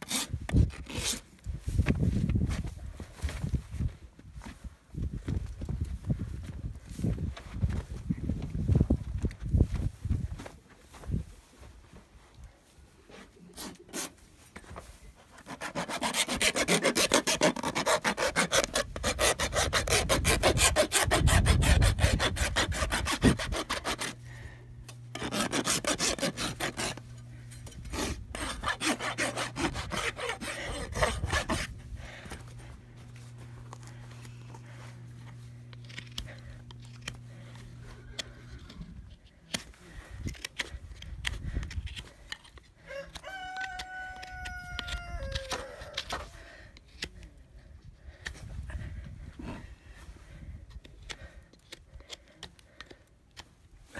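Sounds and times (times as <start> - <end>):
hoof rasp filing hoof: 0.0 - 1.3, 13.1 - 53.6
faint low hum: 22.4 - 42.9.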